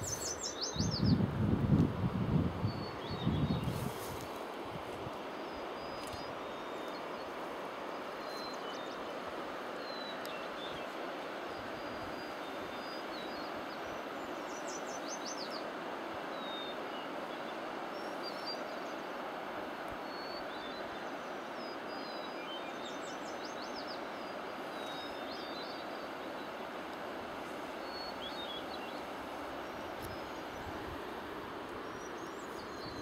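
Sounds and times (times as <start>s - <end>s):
songbirds chirping and trilling: 0.0s - 1.2s, 20.0s - 33.0s
steady rushing wind noise: 0.0s - 20.0s, 23.3s - 33.0s.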